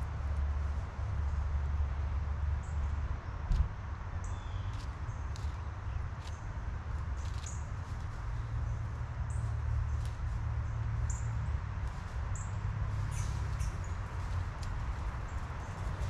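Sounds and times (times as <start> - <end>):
squirrel rustling in dry leaves: 4.2 - 16.0.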